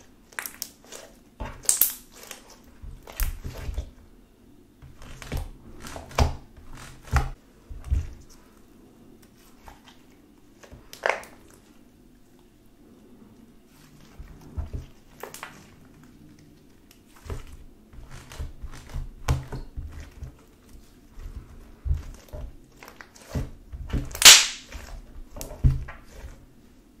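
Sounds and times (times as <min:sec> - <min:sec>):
slime squelching and popping: 0:00.3 - 0:03.8, 0:21.2 - 0:26.4.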